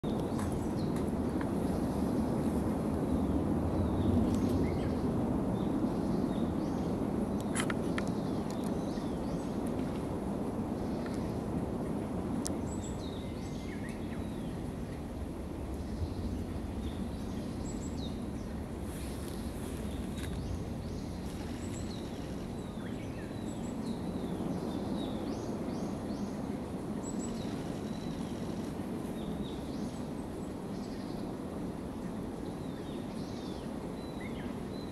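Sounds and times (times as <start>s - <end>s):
low outdoor rumble: 0.0s - 34.9s.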